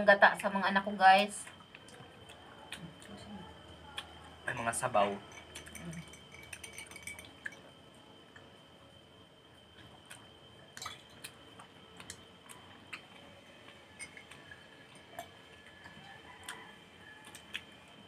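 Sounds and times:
faint steady high tone: 0.0 - 9.7
chewing clicks and smacks: 1.4 - 4.3, 9.8 - 18.0.

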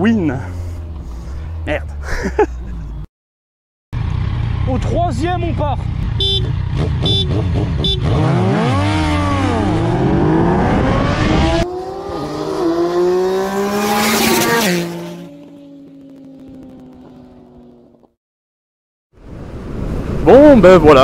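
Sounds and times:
motorcycles passing at full throttle: 0.0 - 2.9, 4.0 - 18.1
motorcycle engine accelerating: 4.0 - 18.2.

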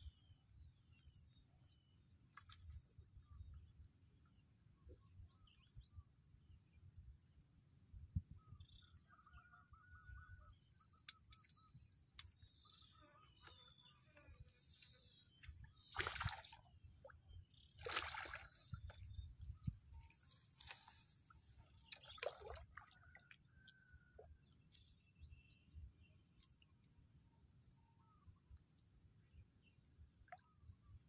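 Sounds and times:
water sloshing and splashing: 15.8 - 16.6, 17.8 - 19.2, 20.0 - 23.5.

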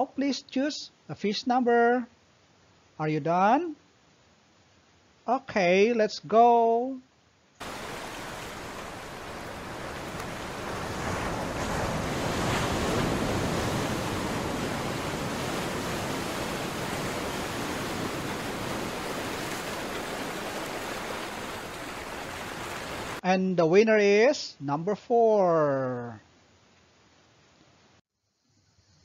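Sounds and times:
ocean waves rushing: 7.6 - 23.2.

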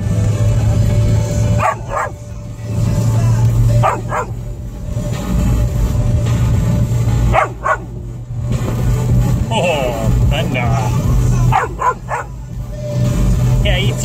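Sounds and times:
car cabin rumble: 0.0 - 14.0
dog barking: 1.5 - 2.2, 3.8 - 4.4, 7.3 - 7.9, 11.5 - 12.4.

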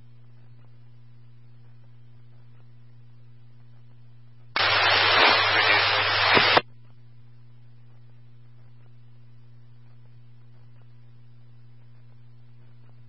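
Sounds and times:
low electrical hum: 0.0 - 13.0
loud radio static: 4.6 - 6.6.

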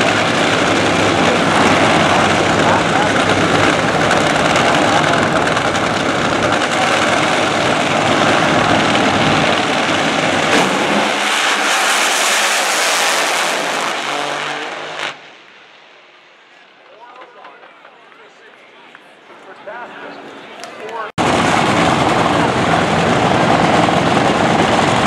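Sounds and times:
sharp crack: 0.0 - 16.0
drag racing engines roaring: 0.0 - 25.0.

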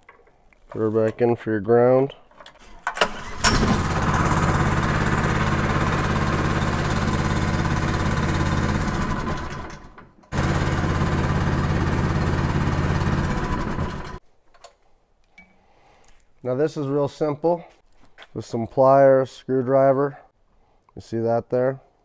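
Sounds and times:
small engine running: 3.0 - 14.2.

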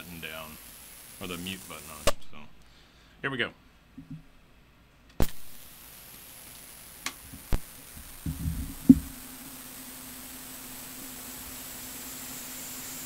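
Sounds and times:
tape hiss: 0.0 - 13.0
low steady hum: 6.7 - 13.0
low thumps: 8.1 - 9.2.

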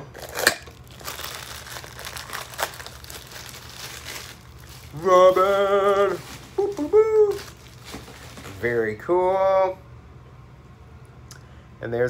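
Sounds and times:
plastic packaging crinkling: 0.1 - 9.0
man calling out: 4.9 - 7.6.

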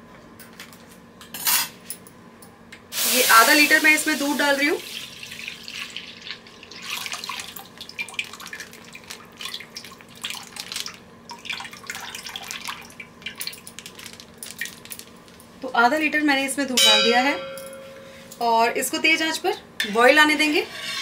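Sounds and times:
milk dripping: 5.7 - 15.0.

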